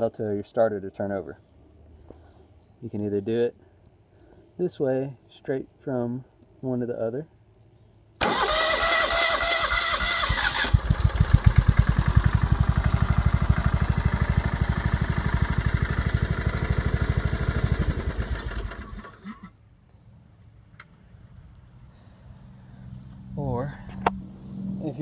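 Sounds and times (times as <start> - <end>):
mower engine running: 8.2 - 19.4
electric starter whining: 8.2 - 19.5.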